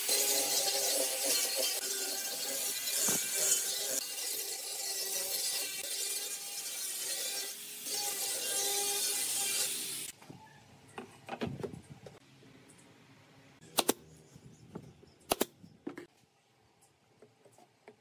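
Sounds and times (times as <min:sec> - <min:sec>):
angle grinder whining on wood: 0:00.0 - 0:10.1.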